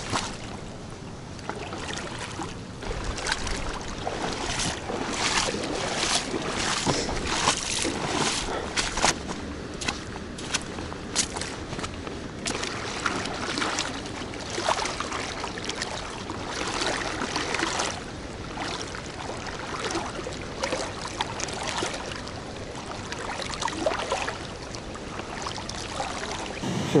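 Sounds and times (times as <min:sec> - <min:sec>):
oars splashing in water: 0:00.0 - 0:00.6, 0:01.4 - 0:27.0
water washing: 0:02.8 - 0:09.3.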